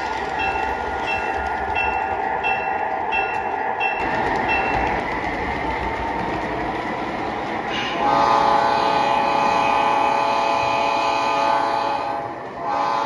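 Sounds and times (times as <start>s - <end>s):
model train rattling on track: 0.0s - 13.0s
model locomotive horn: 7.7s - 13.0s.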